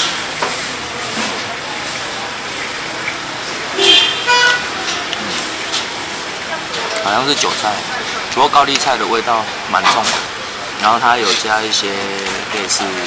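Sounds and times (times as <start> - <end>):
street background noise: 0.0 - 13.0
vehicle horn toot: 3.8 - 4.8.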